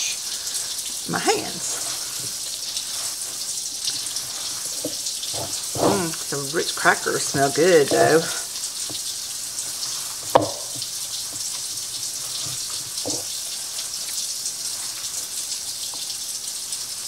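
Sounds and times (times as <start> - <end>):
tap running into sink: 3.8 - 14.2
sharp knock: 10.4 - 10.7.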